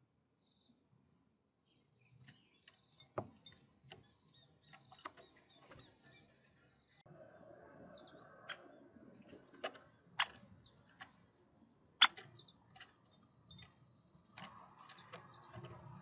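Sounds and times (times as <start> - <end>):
woodpecker ticking and knocking: 2.1 - 6.2, 8.4 - 16.0.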